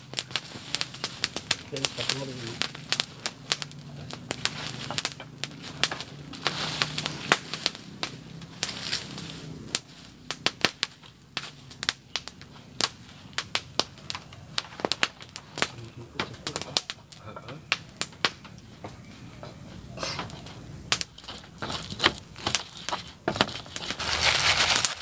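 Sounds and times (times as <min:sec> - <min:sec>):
fire crackling and popping: 0:00.0 - 0:25.0.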